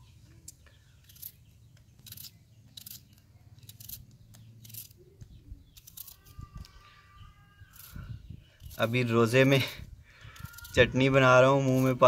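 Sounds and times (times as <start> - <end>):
faint bird chirps: 0.0 - 12.0.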